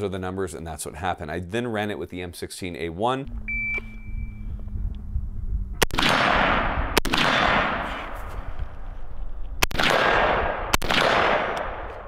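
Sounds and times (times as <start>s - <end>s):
rifle shots echoing: 5.8s - 8.2s, 9.6s - 12.0s.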